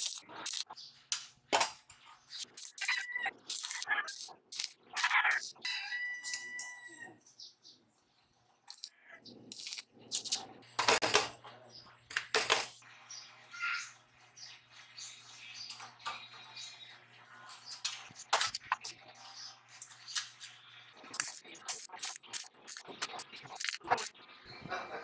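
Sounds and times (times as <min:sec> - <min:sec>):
crackling stick welding: 0:00.0 - 0:00.8, 0:02.3 - 0:05.6, 0:09.5 - 0:10.4, 0:19.9 - 0:24.2.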